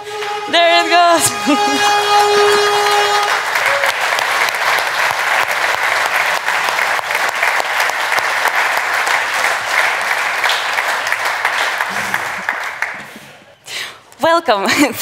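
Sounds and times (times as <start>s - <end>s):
crowd clapping: 0.0s - 13.6s.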